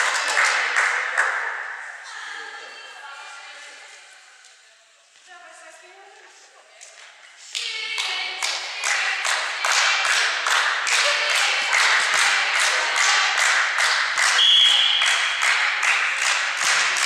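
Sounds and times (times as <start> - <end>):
rhythmic hand-clapping: 0.0 - 1.8, 6.8 - 17.0
referee's whistle blast: 14.4 - 15.4.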